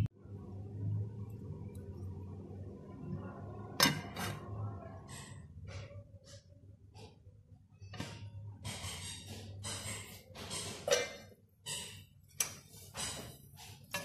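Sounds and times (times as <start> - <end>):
low steady hum: 0.0 - 6.3
spatula scraping steel pan: 12.7 - 14.0.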